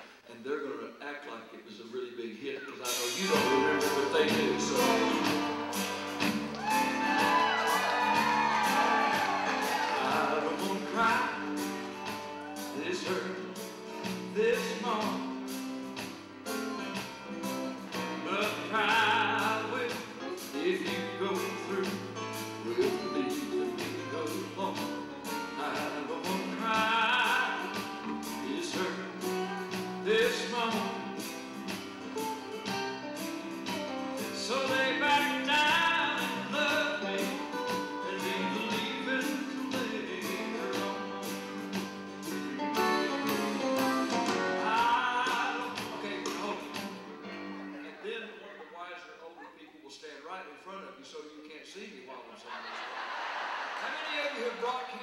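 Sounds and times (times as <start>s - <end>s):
man singing: 2.5s - 6.0s, 6.8s - 11.9s, 12.6s - 13.6s, 14.3s - 15.4s, 18.1s - 31.6s, 34.2s - 41.7s, 42.3s - 48.6s
country band playing: 2.6s - 48.7s
strummed acoustic guitar: 2.9s - 48.1s.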